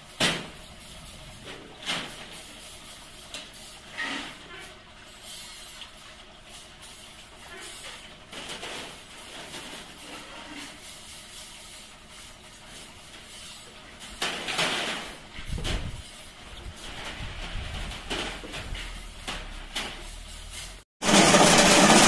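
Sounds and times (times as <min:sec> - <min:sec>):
weaving machine clattering: 0:21.0 - 0:22.0.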